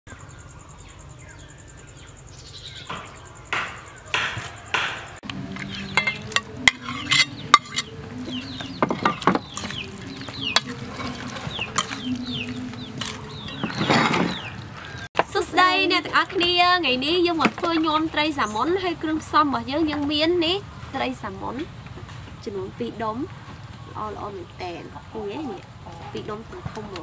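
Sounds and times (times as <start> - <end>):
spoon scraping in metal bowl: 5.5 - 8.0, 8.8 - 14.4.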